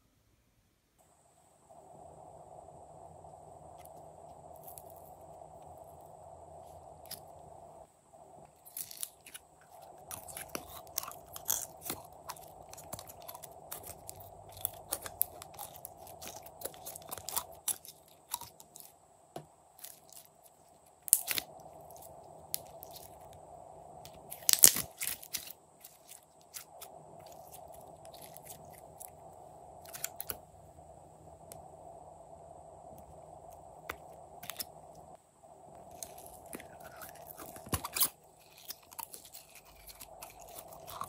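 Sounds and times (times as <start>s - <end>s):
slime popping: 24.3s - 26.7s.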